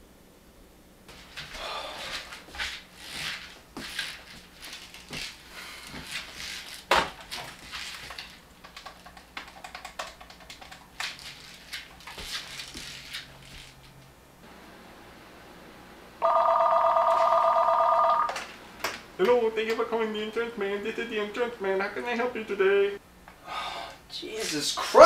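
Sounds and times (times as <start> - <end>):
irregular clicks and knocks: 6.9 - 11.3.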